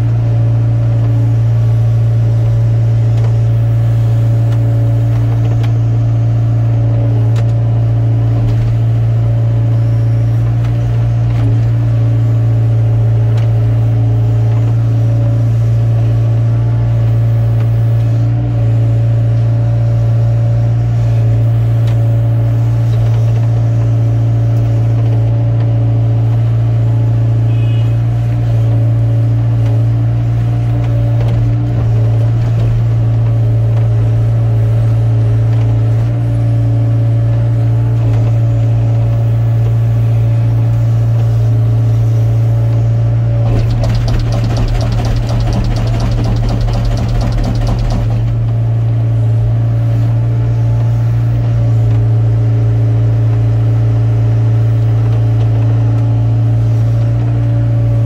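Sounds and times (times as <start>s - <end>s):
excavator diesel engine running: 29.6s - 52.0s
fast rattling pulse: 43.4s - 48.8s.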